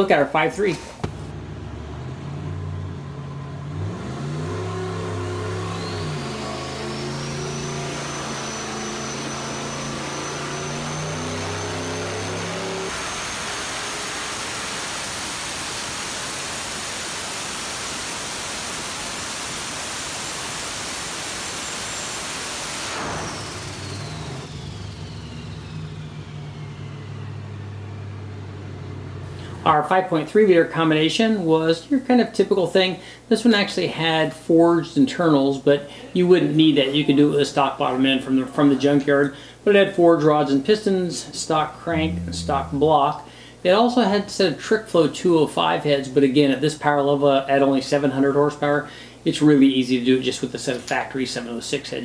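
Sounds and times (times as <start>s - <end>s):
turbocharged engine revving: 1.0s - 14.7s, 22.7s - 29.7s, 41.8s - 43.2s
turbo whistle: 5.5s - 13.5s.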